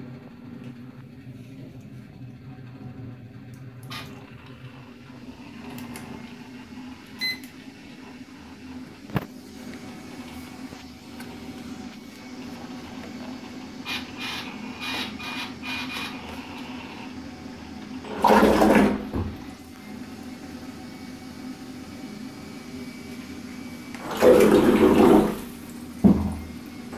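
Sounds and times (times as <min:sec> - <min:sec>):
propeller churning water: 0:18.0 - 0:19.6, 0:23.8 - 0:26.9.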